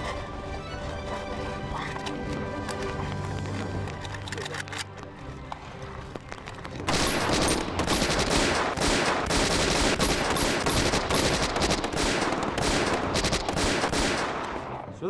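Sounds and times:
rapid automatic gunfire: 6.9s - 14.5s.

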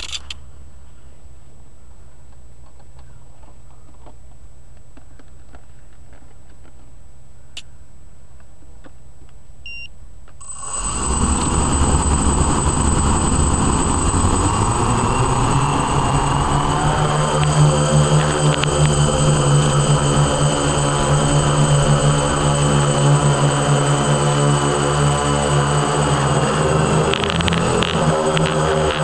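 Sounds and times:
short beep: 9.7s - 22.8s
drone propeller buzz: 10.4s - 29.0s
high electronic whine: 10.4s - 29.0s.

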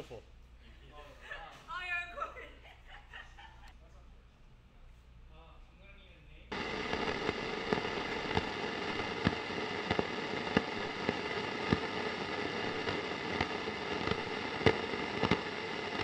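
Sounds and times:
steady hiss: 5.3s - 16.0s.

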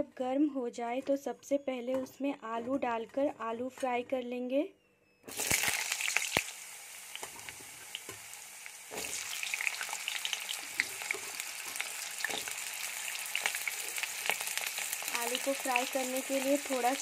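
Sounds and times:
potatoes frying in oil: 5.3s - 17.0s.

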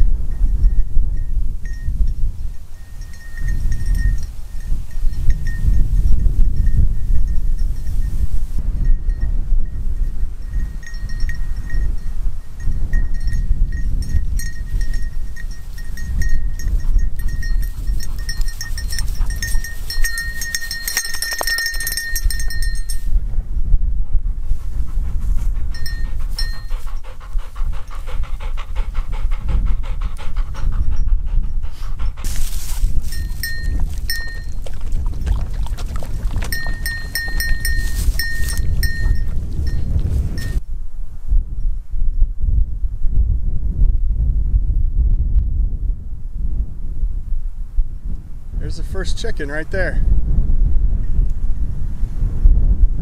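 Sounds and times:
wind rumble on microphone: 0.0s - 53.0s
dog bell jingling: 2.7s - 8.2s, 10.4s - 23.1s, 25.7s - 27.2s, 32.2s - 40.6s.

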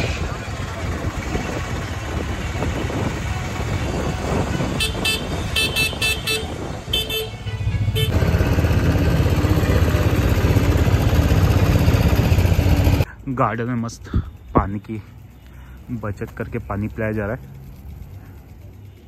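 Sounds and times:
horn short beeps: 4.8s - 8.2s.

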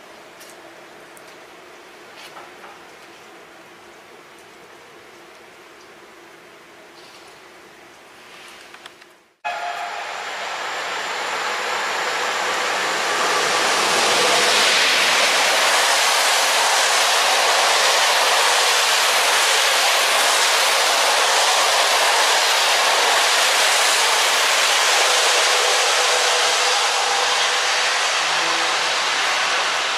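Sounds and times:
passenger train passing at speed: 9.4s - 29.9s.

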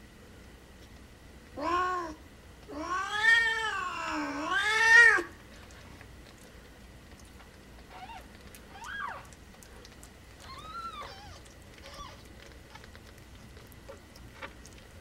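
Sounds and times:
cat meowing and yowling: 1.6s - 5.3s, 7.9s - 9.3s, 10.4s - 12.3s.

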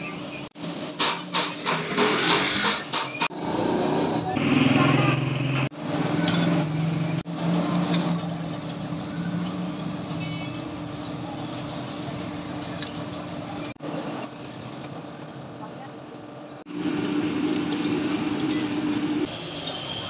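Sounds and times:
light metal clinks: 7.6s - 8.6s
air blower humming: 16.7s - 19.3s.

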